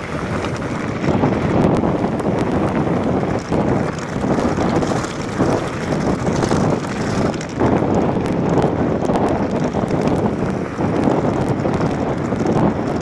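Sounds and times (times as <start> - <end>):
gravel ticks and rattles: 0.0 - 13.0
tyres rumbling over stones: 0.0 - 13.0
wind rushing over microphone: 0.0 - 13.0.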